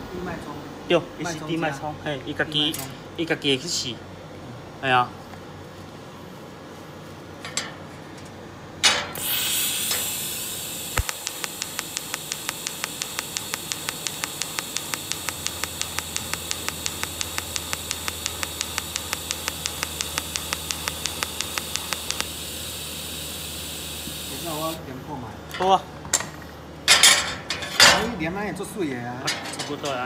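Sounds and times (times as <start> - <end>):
welding arc hissing and pulsing: 9.2 - 24.8.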